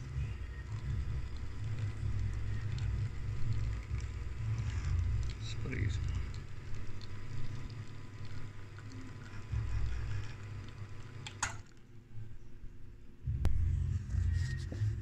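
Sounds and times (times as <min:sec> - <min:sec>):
espresso pump humming: 0:00.0 - 0:11.6
coffee pouring into cups: 0:00.0 - 0:11.8.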